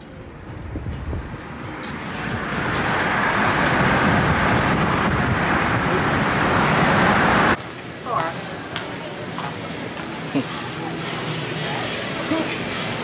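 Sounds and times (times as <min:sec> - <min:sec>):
wind rushing in open car: 0:00.3 - 0:07.6.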